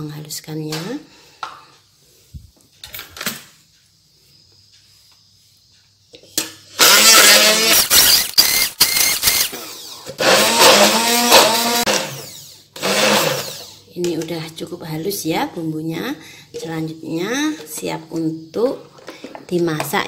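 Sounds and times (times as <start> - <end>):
stick blender motor grinding: 6.7 - 13.8.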